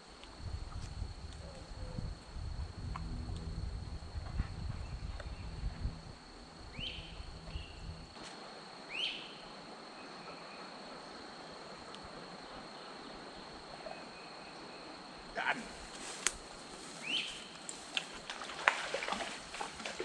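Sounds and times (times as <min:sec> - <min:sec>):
low rumble: 0:02.0 - 0:08.2
high-pitched insect drone: 0:04.8 - 0:08.2
bird rising calls: 0:06.7 - 0:07.9.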